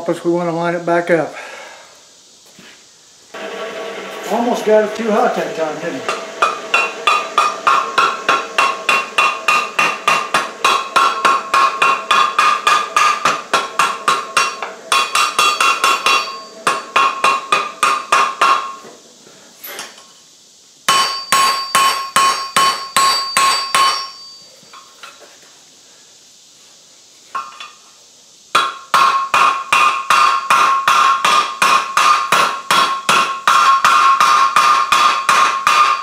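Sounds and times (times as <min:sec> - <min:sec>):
hammer striking steel on anvil: 0:06.0 - 0:18.9, 0:20.9 - 0:24.9, 0:28.5 - 0:36.0.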